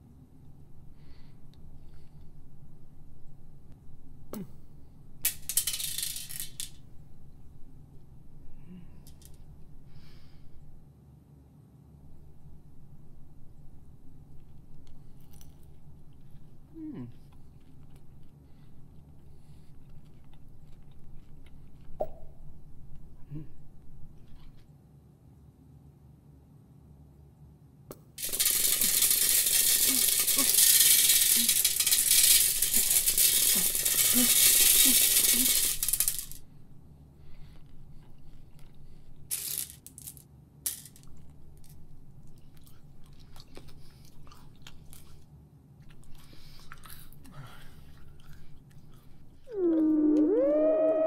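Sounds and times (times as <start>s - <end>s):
candies clattering as hand stirs: 5.2s - 6.9s, 28.2s - 36.4s, 39.3s - 41.9s
candies pouring into a sink: 28.2s - 36.4s
gliding electronic tone: 49.6s - 51.0s.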